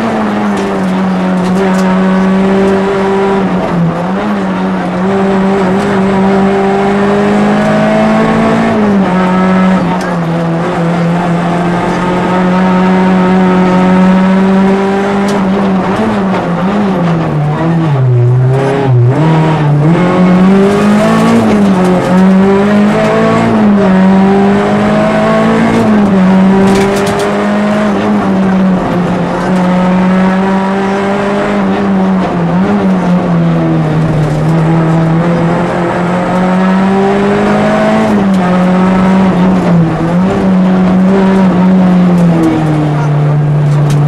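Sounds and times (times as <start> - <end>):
car engine revving: 0.0 - 44.0.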